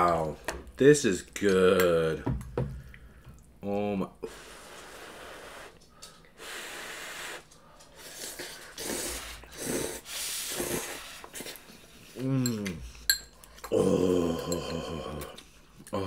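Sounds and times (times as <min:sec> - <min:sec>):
people slurping noodles: 0:06.4 - 0:12.9, 0:13.6 - 0:16.0.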